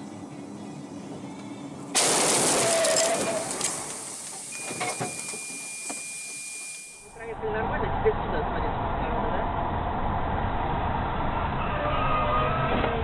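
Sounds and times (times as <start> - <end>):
road noise: 0.0 - 13.0
windshield smashing: 2.0 - 5.2
steady high beep: 4.5 - 7.2.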